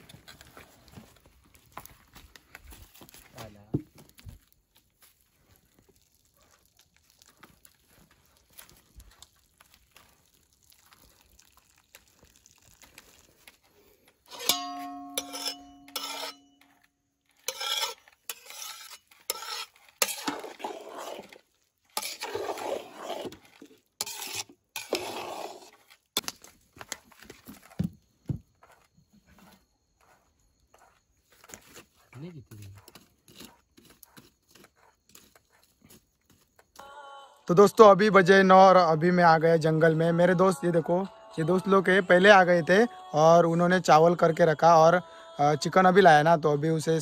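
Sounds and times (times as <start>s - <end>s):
metal spoon scraping a pot: 14.2s - 26.0s
metal pot struck ringing: 14.3s - 16.6s.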